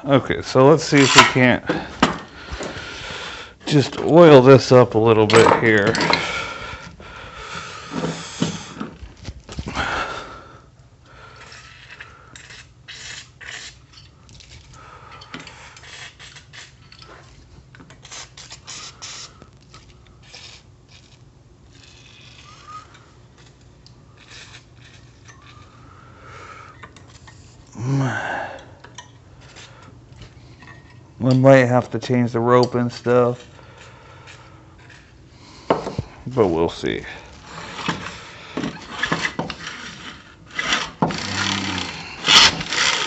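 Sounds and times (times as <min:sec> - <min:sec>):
scraping and clicking: 0:37.6 - 0:43.0
starter rope pulled and rewinding: 0:38.8 - 0:43.0.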